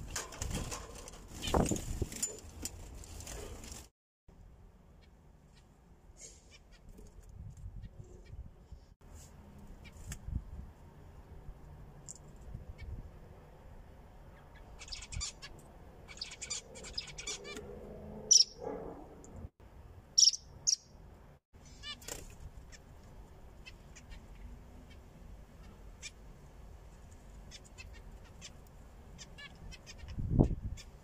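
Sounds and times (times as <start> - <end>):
zebra finches chirping: 14.5 - 15.5, 16.1 - 17.6, 18.3 - 18.6, 20.2 - 20.8.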